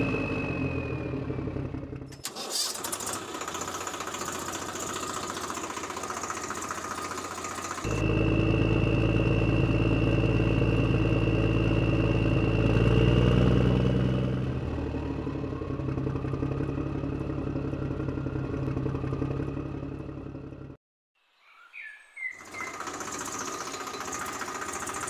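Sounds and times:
engine running: 0.0s - 20.8s, 22.4s - 25.0s.

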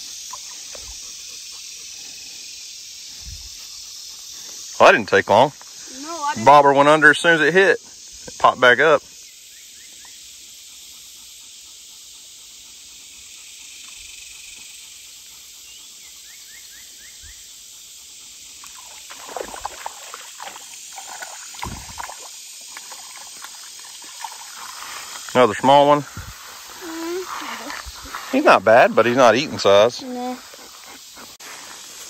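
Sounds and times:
high insect hiss: 0.0s - 32.0s
fish splashing on water surface: 18.7s - 25.2s.

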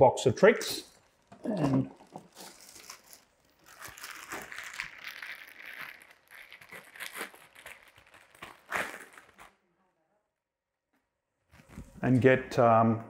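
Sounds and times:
plastic packaging rustling: 0.9s - 9.6s.

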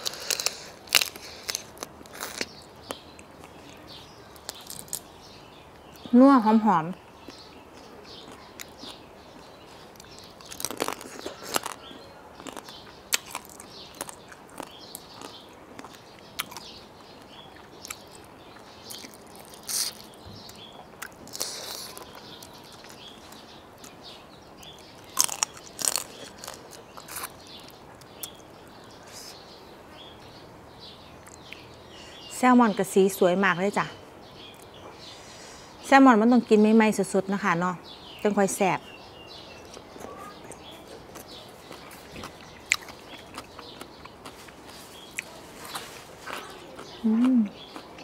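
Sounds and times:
person chewing crab: 0.0s - 3.8s, 9.9s - 16.7s, 17.6s - 23.1s, 24.6s - 28.4s, 40.6s - 48.0s
sharp crunches: 10.0s - 16.7s, 25.0s - 28.4s.

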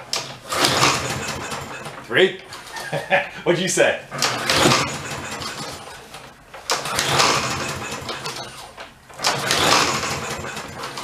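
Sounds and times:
lawn mower engine cranking: 0.1s - 2.7s, 4.1s - 11.0s.

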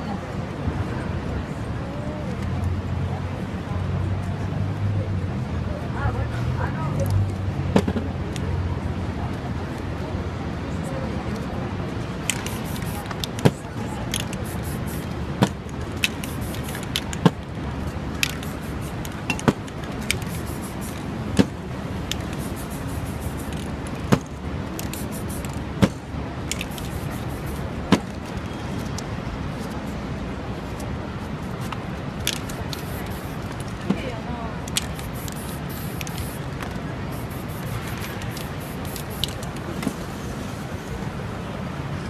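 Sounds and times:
steady background hiss: 12.1s - 28.4s, 29.6s - 33.9s, 34.5s - 41.7s
sharp taps and clicks: 12.2s - 17.5s.

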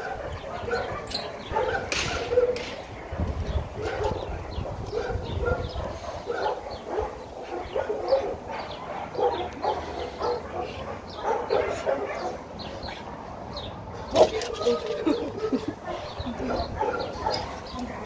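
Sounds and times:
dog barking and yipping: 0.0s - 12.5s, 14.0s - 18.0s.

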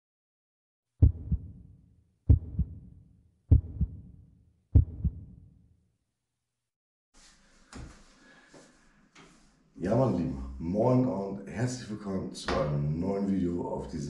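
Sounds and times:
heartbeat thumps: 1.0s - 1.6s, 2.3s - 2.9s, 3.5s - 4.1s, 4.8s - 5.4s.

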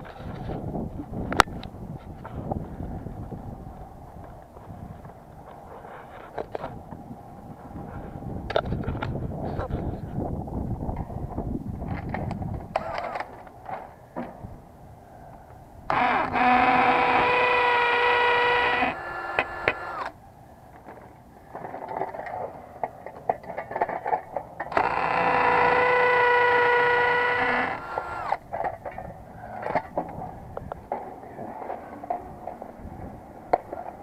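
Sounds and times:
cordless drill running: 15.9s - 20.1s, 24.7s - 28.4s.

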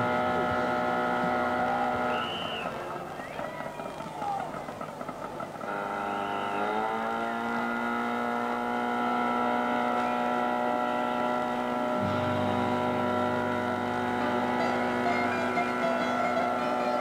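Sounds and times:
held chord sliding down in pitch: 6.6s - 17.0s
low bass note: 9.0s - 17.0s.

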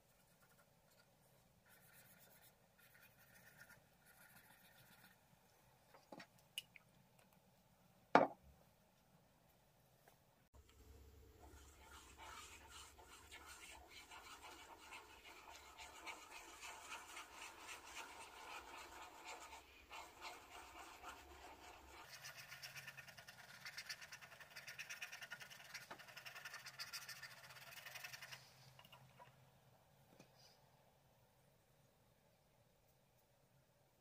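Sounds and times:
pen nib scratching on paper: 1.6s - 5.2s, 11.5s - 28.4s.

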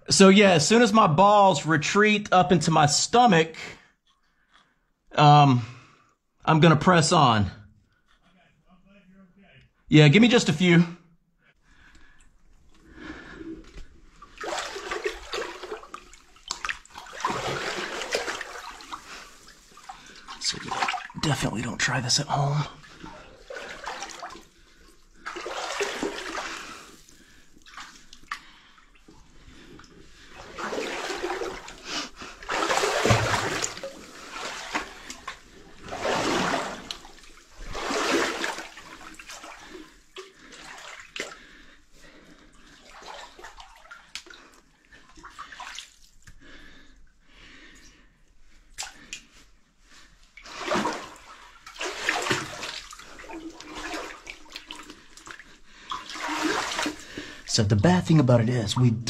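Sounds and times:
water sloshing and splashing: 11.8s - 59.0s.

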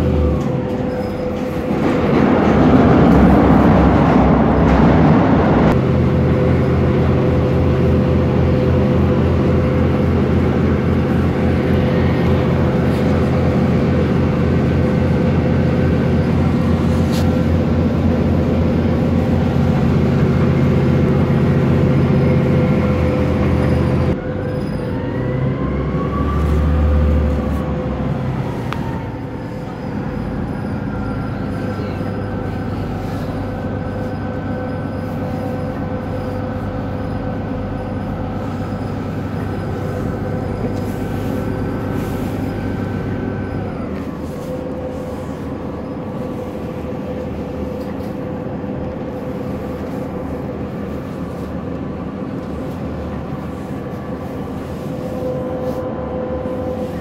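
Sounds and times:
train rumbling: 0.0s - 57.0s.

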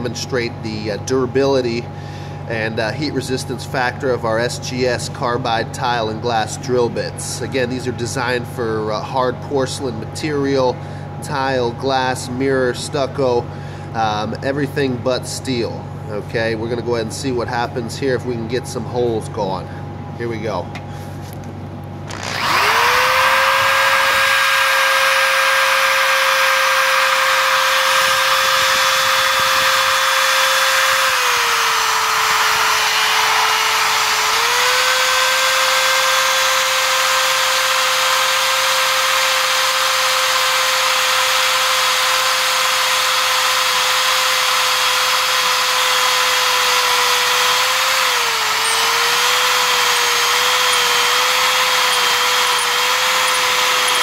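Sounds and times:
electric drill motor whine: 22.1s - 54.0s.

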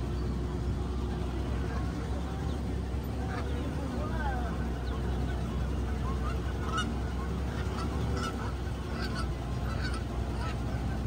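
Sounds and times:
flamingos honking: 0.0s - 11.0s
truck engine rumble: 0.0s - 11.0s.

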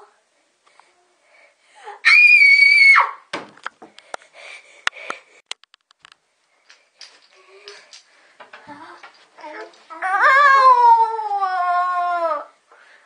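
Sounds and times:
faint breathing: 0.3s - 2.0s, 3.9s - 5.4s, 6.5s - 9.0s, 12.7s - 13.0s
girl screaming: 2.0s - 3.3s, 9.9s - 12.6s.

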